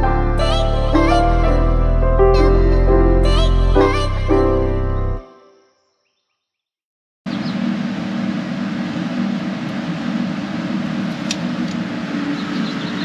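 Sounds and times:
machinery drone: 7.3 - 13.0.

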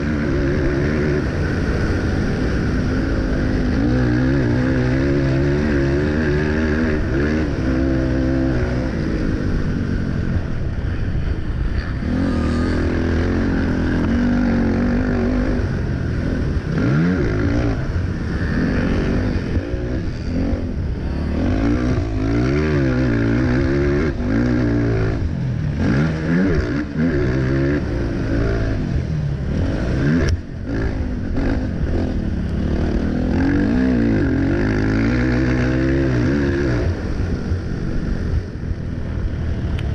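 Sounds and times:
quad engine revving: 0.0 - 10.8, 11.5 - 39.9.

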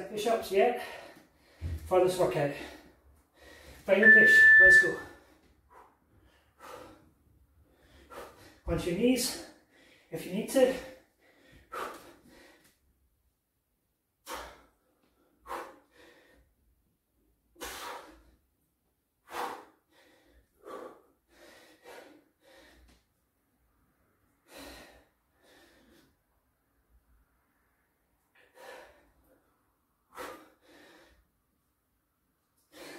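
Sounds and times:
man breathing hard: 0.8 - 1.9, 2.6 - 3.9, 5.1 - 8.7, 9.3 - 10.1, 10.8 - 12.8, 14.2 - 16.7, 17.5 - 18.5, 19.2 - 23.2, 24.3 - 26.4, 28.2 - 31.5, 32.6 - 32.9.

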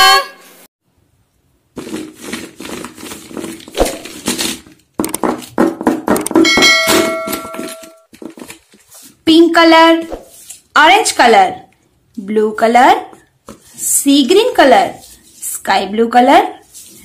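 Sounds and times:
bell-like ding: 6.4 - 8.0.

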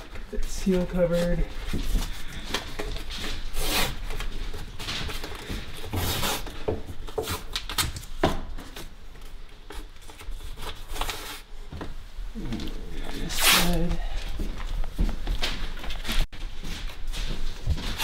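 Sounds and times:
tape rubbed down by hand: 3.5 - 4.1.

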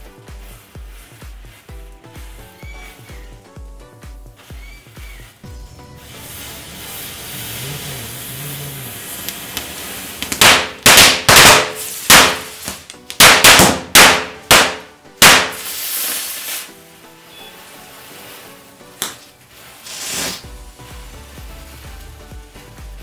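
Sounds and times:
matches fizzing and hissing: 0.1 - 13.0, 15.3 - 23.0
firecrackers banging: 5.1 - 16.7.

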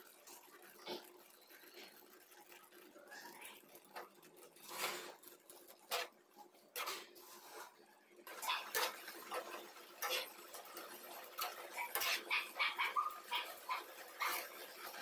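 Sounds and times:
spoon scraping in a pan: 5.8 - 7.8, 8.6 - 10.4.

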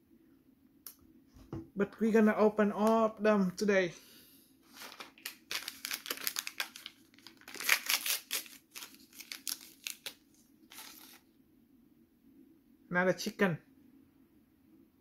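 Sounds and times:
plastic packet crinkling and tearing: 4.7 - 11.2.

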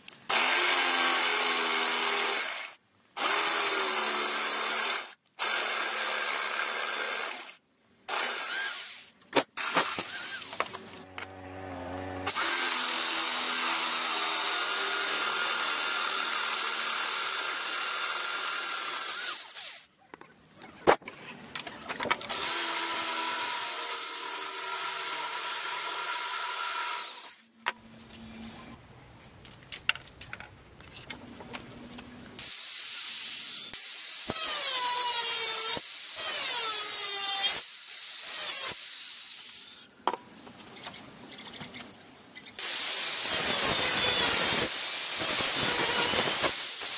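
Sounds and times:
electric drill drilling steel: 12.2 - 19.9, 22.3 - 27.5, 32.4 - 39.8, 42.6 - 46.9.

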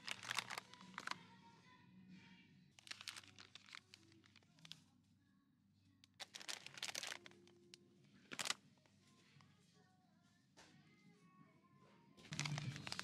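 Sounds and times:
plastic food packets crinkling: 0.0 - 1.2, 2.8 - 4.8, 6.1 - 8.6, 12.2 - 13.0.

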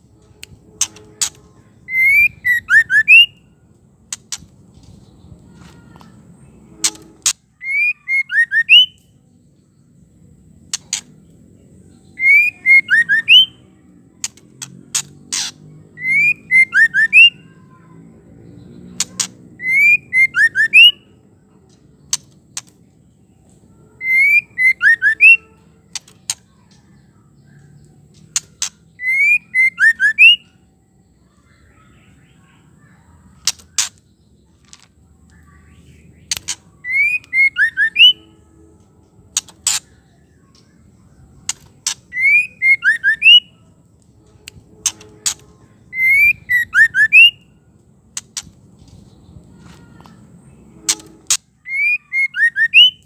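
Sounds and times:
bird clicks and whistled notes: 0.2 - 3.4, 6.7 - 9.1, 12.2 - 13.6, 14.2 - 17.4, 24.0 - 27.0, 27.8 - 30.6, 36.1 - 38.2, 41.4 - 47.5, 50.8 - 53.0.

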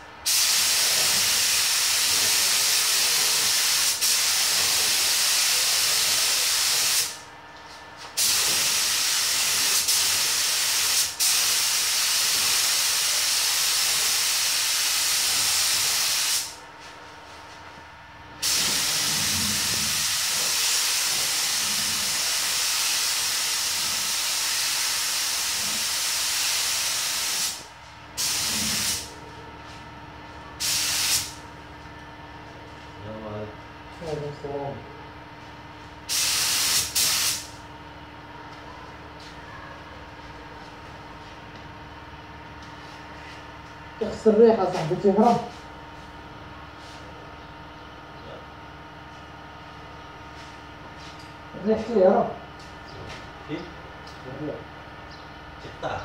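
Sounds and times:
spray gun hissing: 0.3 - 7.2, 8.2 - 16.5, 18.4 - 27.6, 28.2 - 29.1, 30.6 - 31.3, 36.1 - 37.5.

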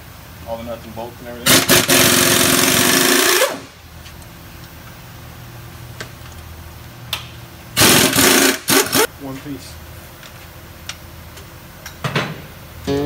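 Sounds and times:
low shop hum: 0.0 - 13.0
power tool rattling buzz: 1.5 - 3.6, 7.8 - 9.1.

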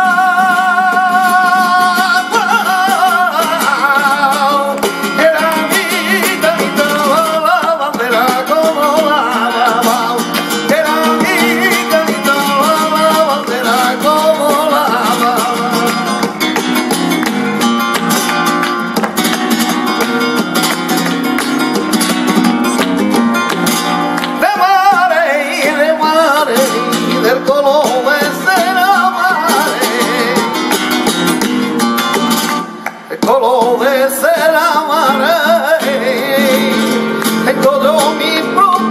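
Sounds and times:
flamenco guitar: 0.0 - 38.9
hand clapping: 1.7 - 38.9
person singing ornamented lines: 24.4 - 30.7.

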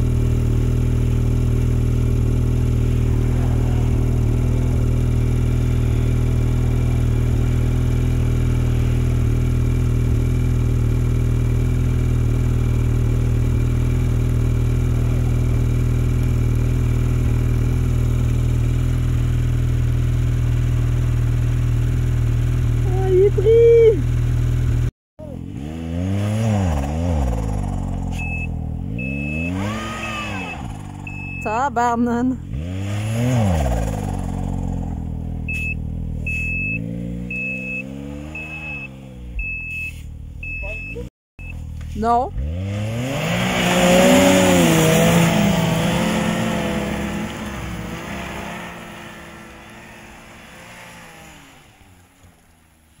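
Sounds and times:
snowmobile engine revving: 0.0 - 41.1, 41.8 - 52.6
short high beeps: 28.1 - 31.7, 35.5 - 41.6.

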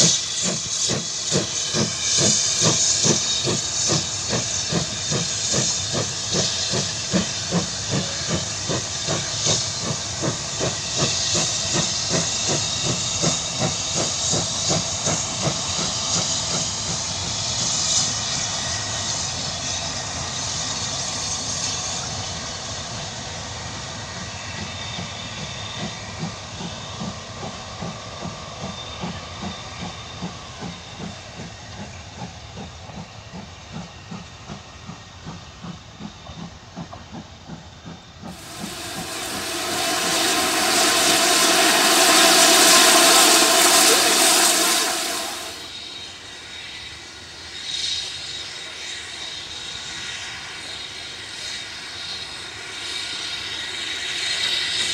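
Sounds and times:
loud steam hiss: 38.3 - 46.0.

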